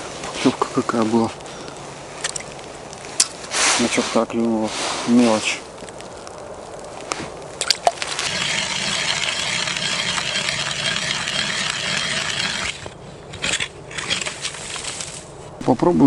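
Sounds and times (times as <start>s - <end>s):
ice auger grinding into ice: 8.0s - 15.2s.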